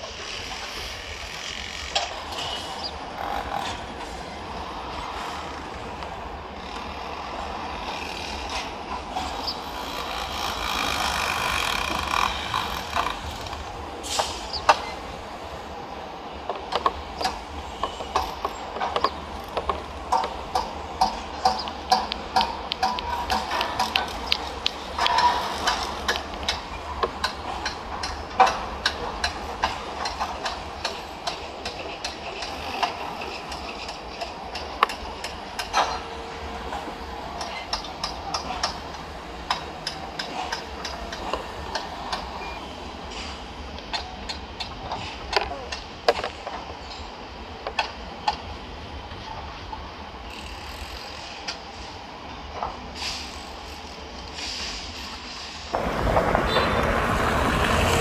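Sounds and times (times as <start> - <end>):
background rumble: 55.8 - 58.0.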